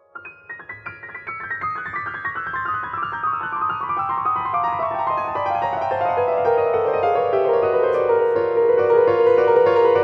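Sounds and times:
grand piano descending run: 4.3s - 10.0s.

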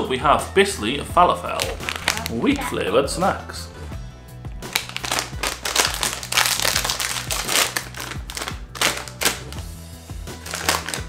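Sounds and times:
background music: 0.0s - 11.0s
plastic snack bag crackling: 1.5s - 2.6s, 4.6s - 9.6s, 10.4s - 11.0s.

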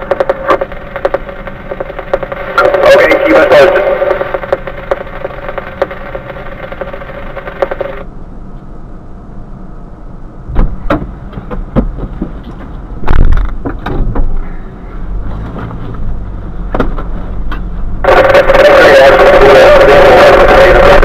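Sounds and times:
knocks and clunks: 10.5s - 14.4s, 16.6s - 17.7s.

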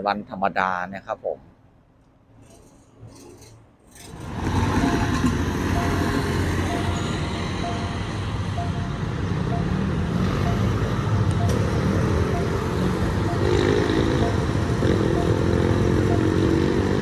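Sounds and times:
road traffic: 1.4s - 17.0s
level crossing warning dings: 2.4s - 16.8s.

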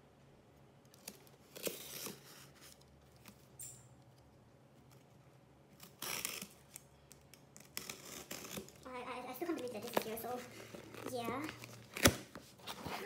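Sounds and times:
parcel rustling and scraping: 9.4s - 13.0s.

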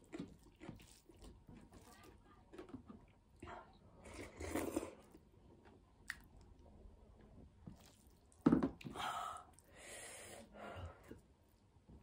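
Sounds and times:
wet chewing and lip-smacking: 0.0s - 1.9s
slurping soup: 4.0s - 5.2s.

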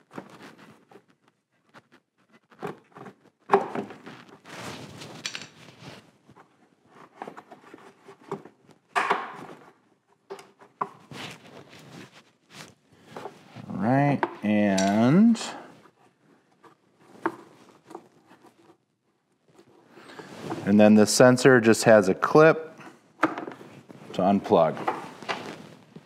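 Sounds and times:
plastic scraping against bodywork: 15.7s - 20.8s, 23.6s - 26.0s.

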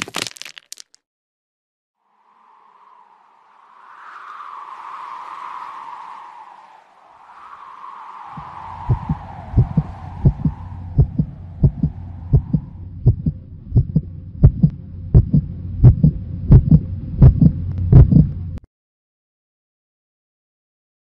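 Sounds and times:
steady low hum: 8.4s - 18.6s
heartbeat thumps: 8.9s - 18.4s.

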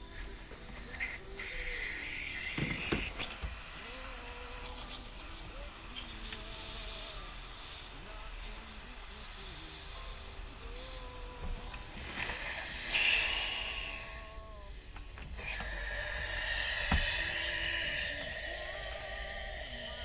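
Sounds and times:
refrigerant gas hissing: 0.0s - 20.0s
knock: 2.6s - 3.6s.

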